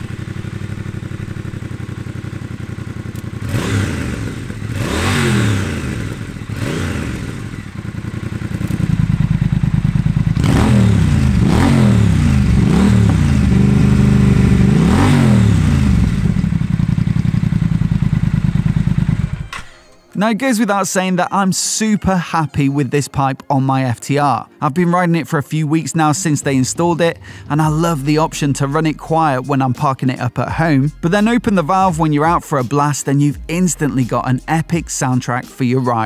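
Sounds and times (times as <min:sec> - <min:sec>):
motorcycle engine idling and revving: 0:00.0 - 0:19.6, 0:26.1 - 0:32.7, 0:33.4 - 0:35.5.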